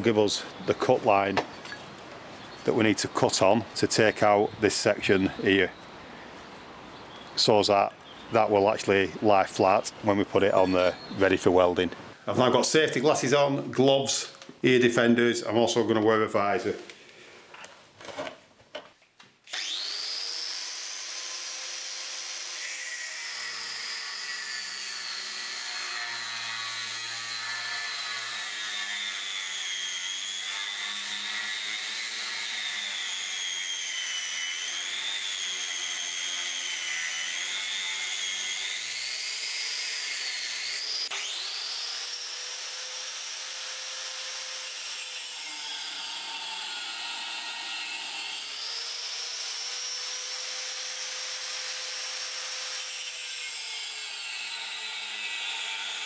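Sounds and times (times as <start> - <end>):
angle grinder cutting steel: 19.5 - 56.0.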